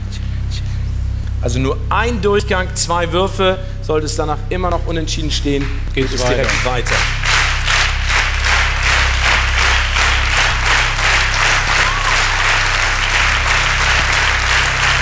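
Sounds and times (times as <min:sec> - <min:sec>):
low hum: 0:00.0 - 0:15.0
audience clapping in unison: 0:05.6 - 0:15.0.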